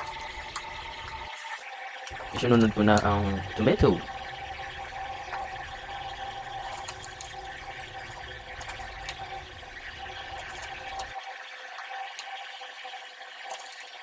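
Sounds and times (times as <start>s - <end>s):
faint hum: 2.2s - 11.1s.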